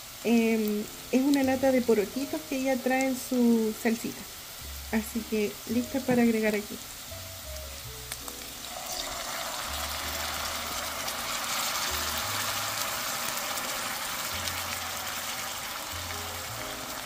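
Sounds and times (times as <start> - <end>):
meat sizzling in a pan: 0.0 - 17.0
beans pouring into pan: 8.4 - 17.0.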